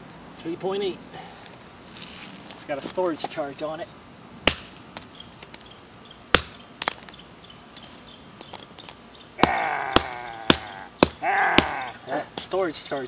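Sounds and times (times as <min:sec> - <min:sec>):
hammer striking battery pack on stone: 0:06.3 - 0:07.1, 0:09.4 - 0:11.8.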